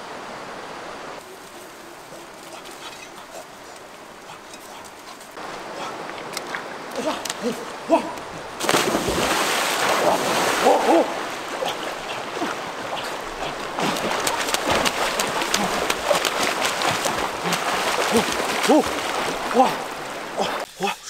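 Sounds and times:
people splashing in river: 5.3 - 20.6.

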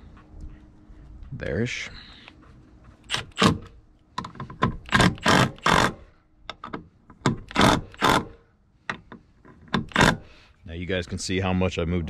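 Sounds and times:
cordless driver trigger bursts: 4.8 - 6.1, 7.4 - 8.4, 9.8 - 10.3.

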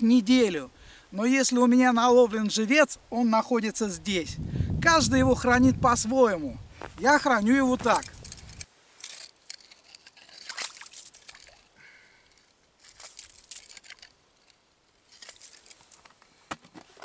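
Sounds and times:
snow and ice scraped and crunched: 6.8 - 11.6, 12.8 - 14.2, 15.0 - 16.0.

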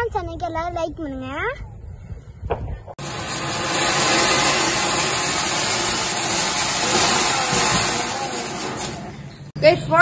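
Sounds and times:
firework fountain hissing: 3.0 - 9.4.

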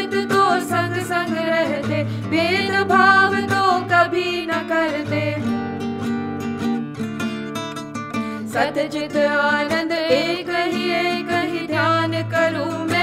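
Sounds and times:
women singing ornamented melody: 0.0 - 5.8, 8.4 - 13.0.

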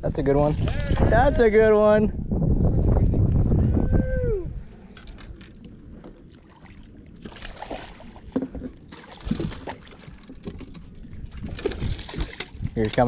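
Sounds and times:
water splashing: 5.5 - 13.0.

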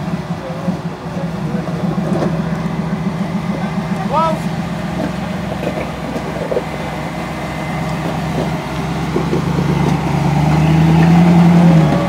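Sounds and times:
off-road vehicle engine under load: 0.0 - 12.0.

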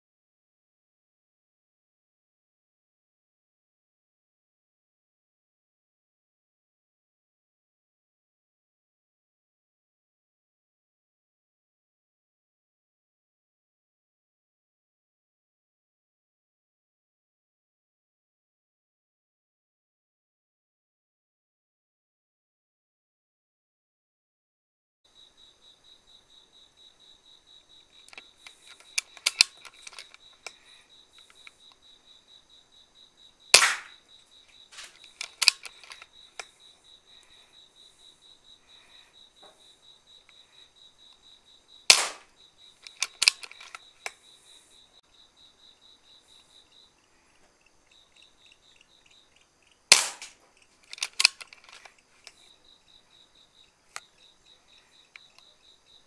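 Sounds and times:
small sharp clicks: 27.8 - 31.8, 33.5 - 37.4, 41.9 - 44.4, 46.4 - 52.5
air rifle shots: 33.5 - 34.0, 41.9 - 42.3, 49.9 - 50.4.

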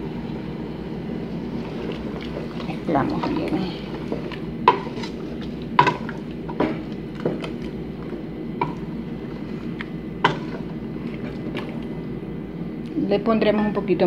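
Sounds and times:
wooden spoon stirring stew: 1.5 - 12.0.

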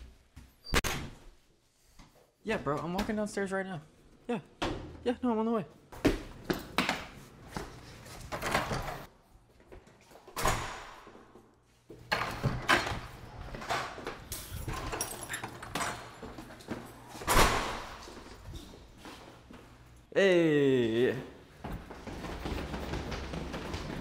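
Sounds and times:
door opening and closing: 0.6 - 1.2, 12.1 - 16.5, 17.2 - 18.3
footsteps: 20.8 - 24.0.

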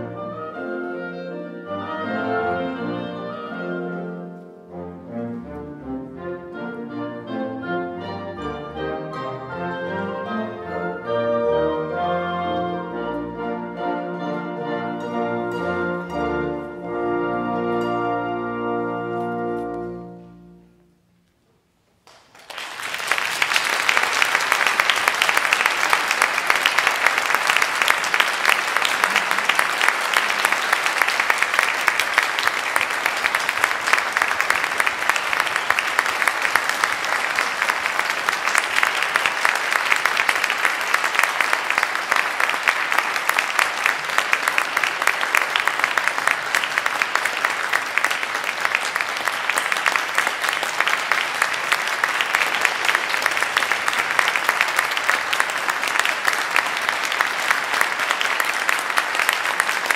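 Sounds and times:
audience applauding: 22.0 - 59.9.

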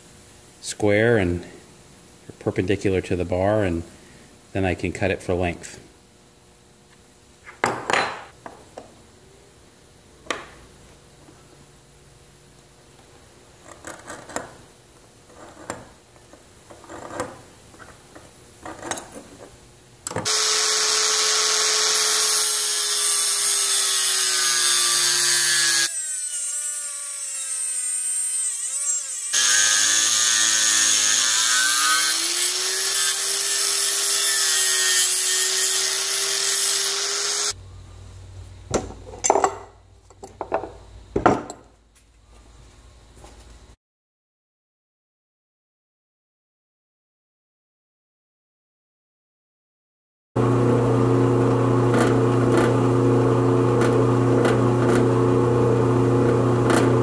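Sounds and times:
angle grinder cutting steel: 20.2 - 37.6, 50.4 - 57.0.

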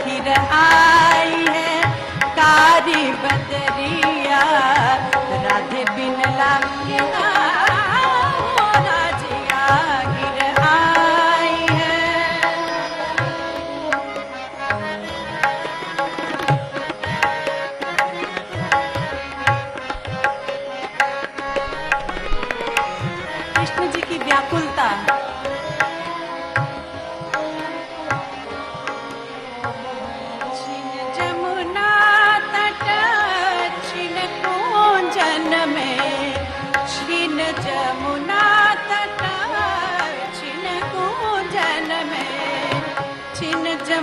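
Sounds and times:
harmonium melody: 0.0 - 44.0
tabla rhythm: 0.0 - 44.0
person singing: 23.2 - 44.0.

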